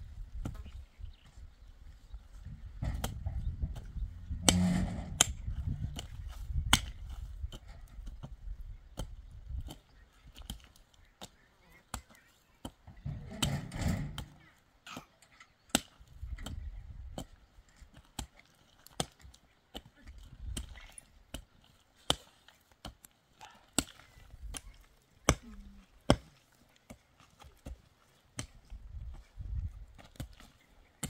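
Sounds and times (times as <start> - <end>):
low rumbling noise: 2.4 - 6.2
sharp knocks: 2.8 - 5.5.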